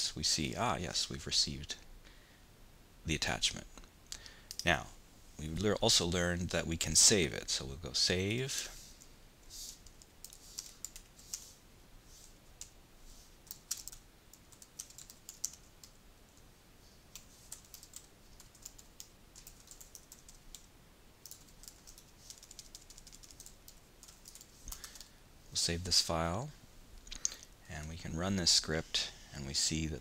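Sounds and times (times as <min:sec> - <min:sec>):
typing on keyboard: 0:13.5 - 0:16.0, 0:17.1 - 0:25.1.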